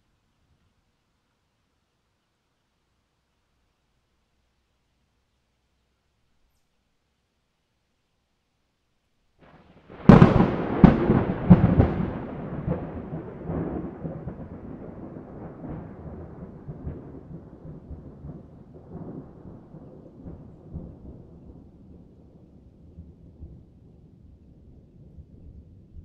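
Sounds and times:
thunder cracking and rumbling: 0:09.4 - 0:26.0.

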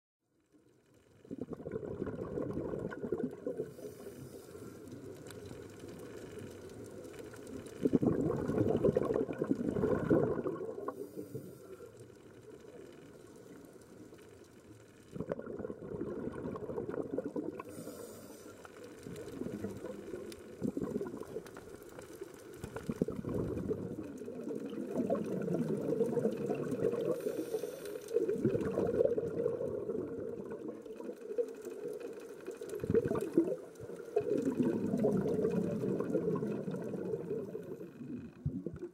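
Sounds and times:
underwater regulator bubbles: 0:01.2 - 0:13.6, 0:15.0 - 0:38.9
faint regulator hissing: 0:17.6 - 0:18.9, 0:27.1 - 0:28.3.

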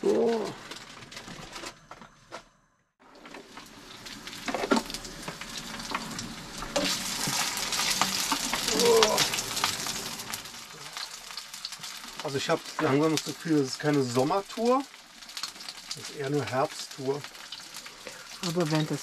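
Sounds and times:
meat sizzling in hot oil: 0:03.0 - 0:19.0.

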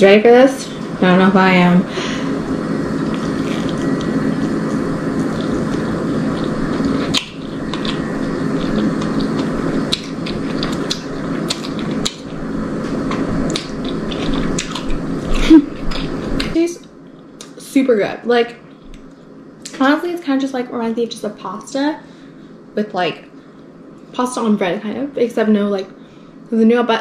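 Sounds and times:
person chewing crunchy food: 0:02.9 - 0:16.5.

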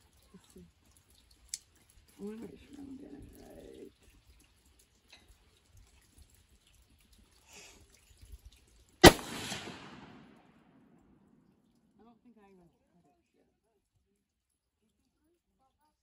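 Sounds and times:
rifle shot with ringing echo: 0:09.0 - 0:10.6.

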